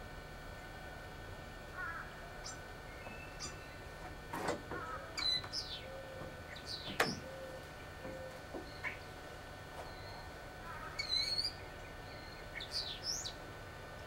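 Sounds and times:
birds chirping: 1.8 - 4.0, 4.8 - 9.2, 9.8 - 13.5.

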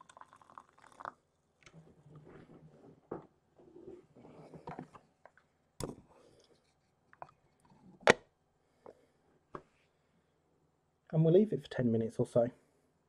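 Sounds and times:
faint bubbling water: 0.0 - 2.8.

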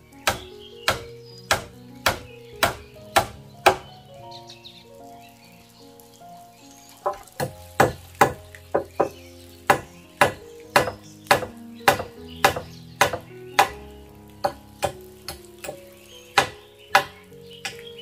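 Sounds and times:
soft background music: 0.0 - 18.0
hand tool striking timber: 0.2 - 3.9, 7.0 - 13.8, 14.4 - 15.8, 16.4 - 17.8.

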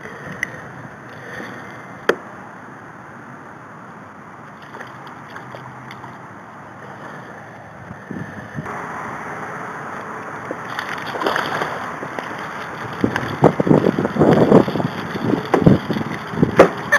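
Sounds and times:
water sloshing against kayak: 4.4 - 7.2, 10.0 - 16.9.

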